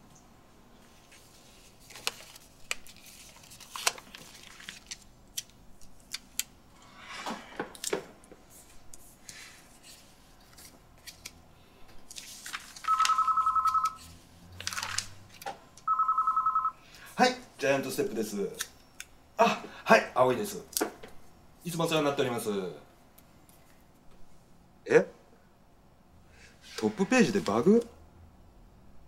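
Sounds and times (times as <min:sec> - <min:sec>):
paper rustling and crinkling: 0:00.9 - 0:06.4, 0:08.7 - 0:11.4, 0:12.1 - 0:13.2, 0:14.6 - 0:15.5
desk phone ringing: 0:12.9 - 0:14.0, 0:15.8 - 0:16.8.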